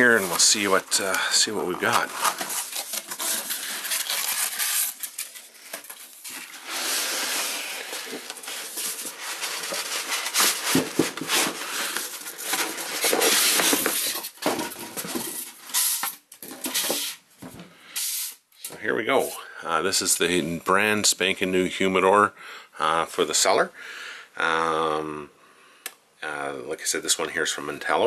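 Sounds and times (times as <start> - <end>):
cardboard and paper rustling: 0.0 - 17.1
box scraping and sliding: 6.3 - 15.4.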